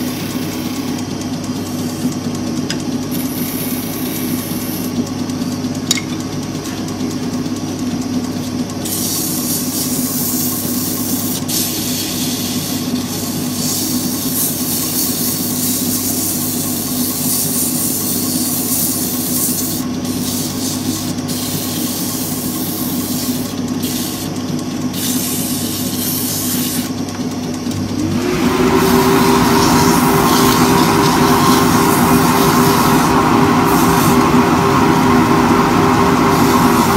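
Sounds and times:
sandpaper hissing on wood: 3.1s - 4.9s, 8.8s - 26.9s, 29.3s - 34.2s
lathe motor humming: 12.2s - 36.9s.

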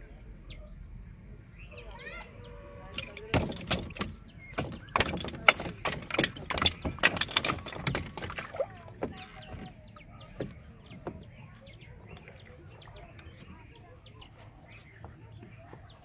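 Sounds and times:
birds chirping: 0.0s - 16.0s
fish flapping on wooden deck: 2.9s - 11.3s.

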